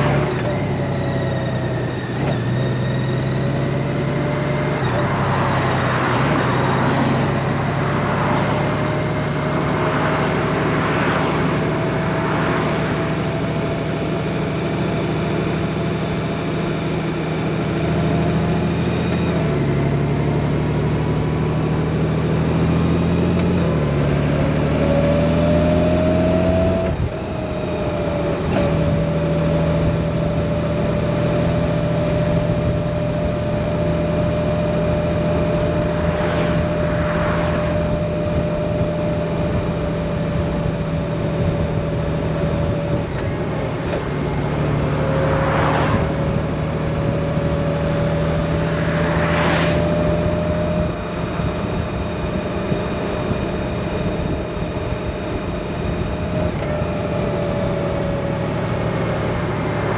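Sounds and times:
motorcycle engine cruising: 0:00.0 - 0:59.9
road and wind noise: 0:00.0 - 0:59.9
cars whooshing past: 0:04.6 - 0:13.7, 0:34.4 - 0:39.7, 0:44.0 - 0:51.6, 0:58.9 - 0:59.9.

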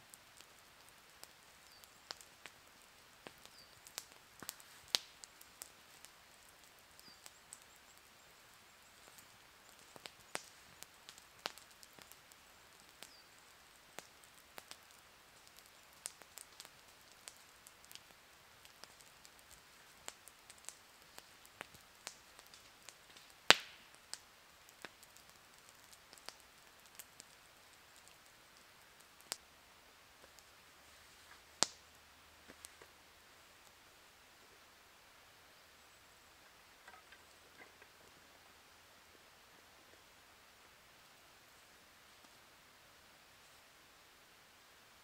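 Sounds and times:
campfire crackling: 0:00.0 - 0:45.0.

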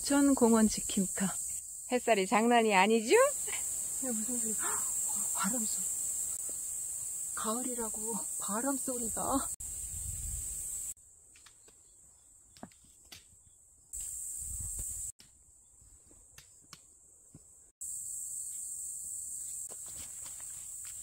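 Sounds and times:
insects chorus: 0:00.0 - 0:12.3, 0:13.8 - 0:15.2, 0:17.3 - 0:21.0
footsteps on rocky trail: 0:19.5 - 0:21.0.

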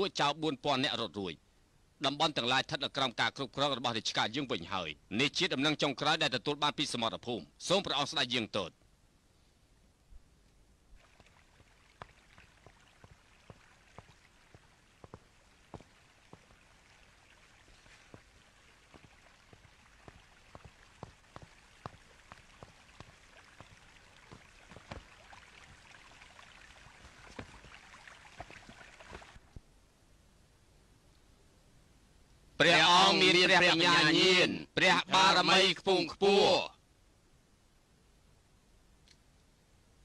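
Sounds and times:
rain-like patter with clicks: 0:10.4 - 0:29.7.

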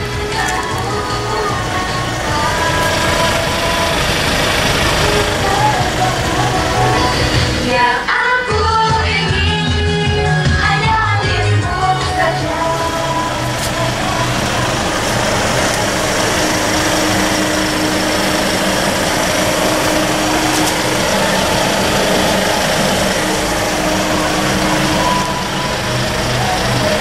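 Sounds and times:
diesel van engine idling: 0:00.0 - 0:27.0.

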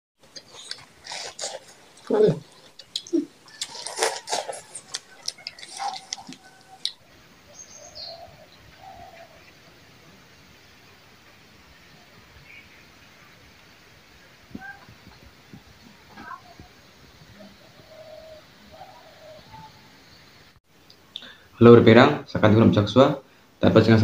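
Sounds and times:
crunching and chewing: 0:00.2 - 0:07.0.

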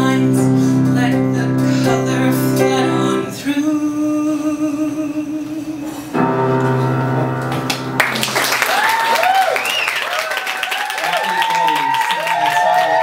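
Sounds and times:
person singing: 0:00.0 - 0:06.2
small band with piano and guitar: 0:00.0 - 0:13.0
audience applause: 0:07.7 - 0:13.0.

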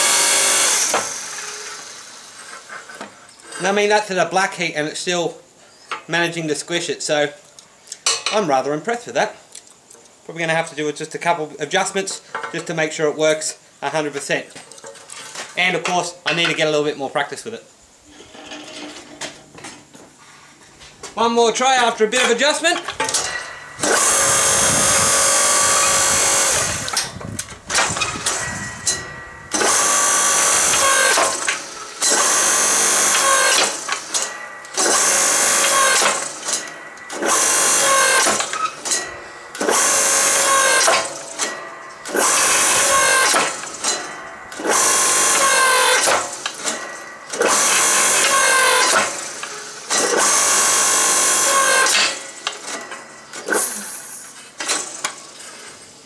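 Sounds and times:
electric motor and hydraulic pump running: 0:00.0 - 0:04.0, 0:22.2 - 0:56.0.

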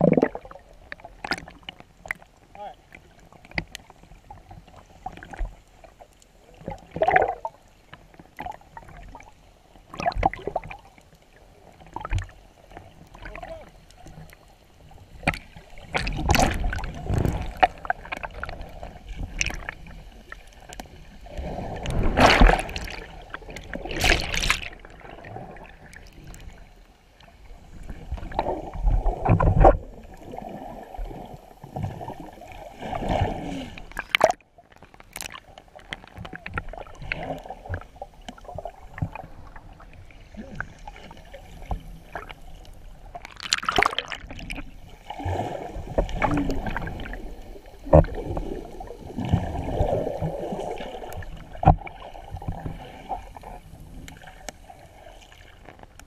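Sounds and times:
splash of bubbles: 0:00.0 - 0:00.6, 0:21.4 - 0:25.7, 0:43.2 - 0:51.2
water sloshing and gurgling: 0:00.0 - 0:56.0.

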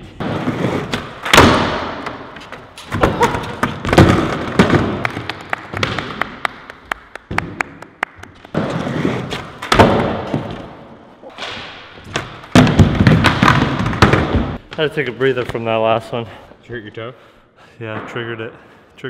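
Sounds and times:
skateboard wheels rolling: 0:00.2 - 0:01.2, 0:08.6 - 0:10.6
hand claps: 0:05.0 - 0:08.6.

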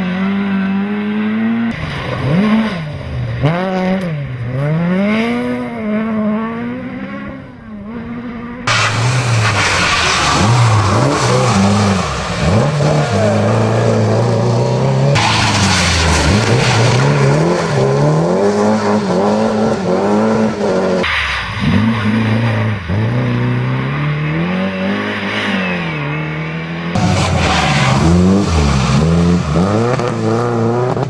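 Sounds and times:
rally car engine revving: 0:00.0 - 0:31.0
tyres on gravel: 0:08.7 - 0:13.4.

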